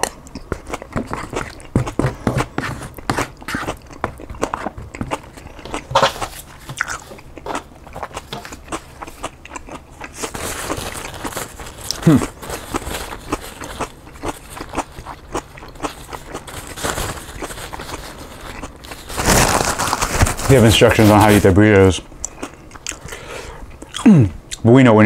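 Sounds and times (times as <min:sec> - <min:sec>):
chewing with wet mouth clicks: 0:00.0 - 0:02.0, 0:06.6 - 0:10.3, 0:13.3 - 0:16.5, 0:22.2 - 0:24.6
paper bag rustling: 0:10.2 - 0:15.1, 0:15.9 - 0:21.6.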